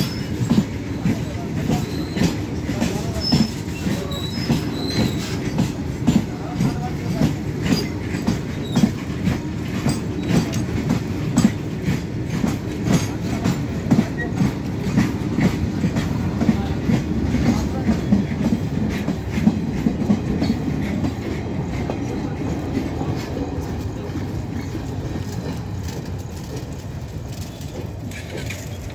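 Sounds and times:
low rumble of train: 0.0 - 28.9
train wheels clickety-clack: 0.0 - 28.9.

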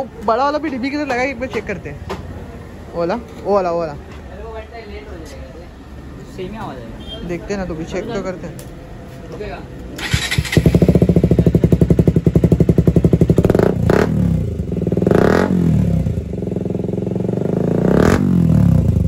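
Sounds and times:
motorcycle engine revving: 10.0 - 19.0.

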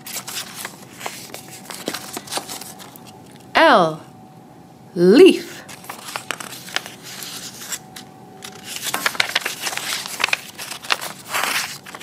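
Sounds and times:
small paper clicks and crackles: 0.0 - 3.1, 5.7 - 7.8, 8.4 - 12.0
paper page rustling: 0.0 - 3.4, 5.7 - 12.0.

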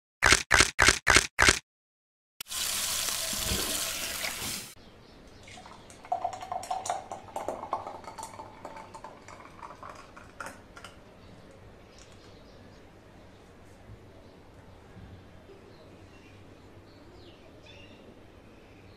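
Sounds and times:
milkshake glugging into glass: 5.5 - 11.0.

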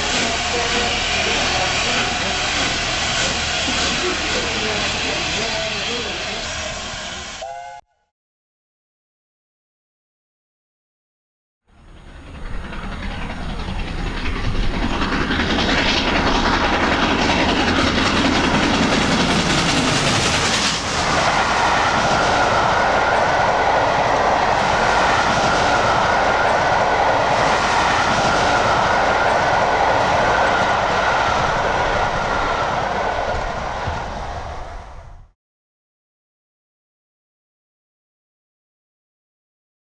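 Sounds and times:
steam locomotive exhaust rushing: 0.0 - 7.8, 11.7 - 35.4
wheels clickety-clack on rails: 11.7 - 34.7.

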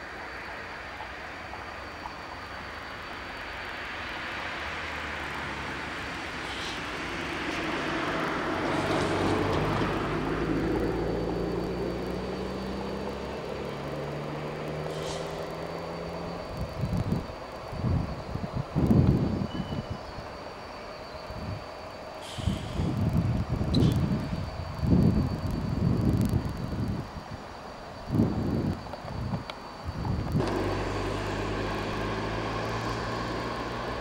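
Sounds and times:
diesel train engine running: 0.0 - 34.0.

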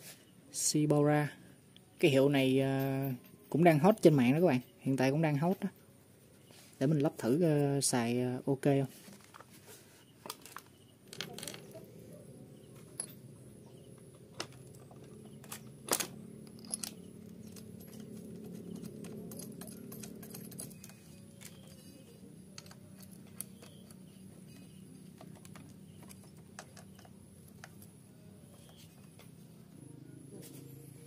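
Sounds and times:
faint low hum: 0.2 - 31.0
small metallic clicks and taps: 22.5 - 28.0.

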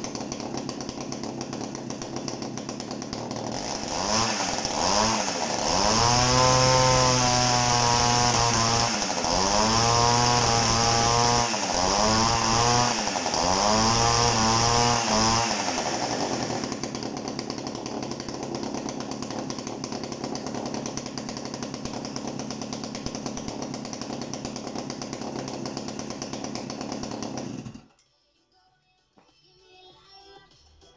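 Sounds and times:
chainsaw engine revving and idling: 0.0 - 27.9.

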